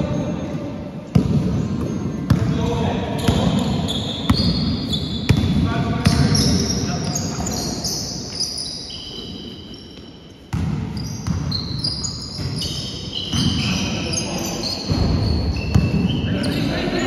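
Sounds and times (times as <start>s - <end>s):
echoing hum of hall: 0.0s - 17.0s
shoes squeaking on court floor: 0.0s - 17.0s
basketball bouncing: 1.1s - 2.6s, 3.2s - 6.5s, 10.5s - 11.8s, 14.9s - 16.2s.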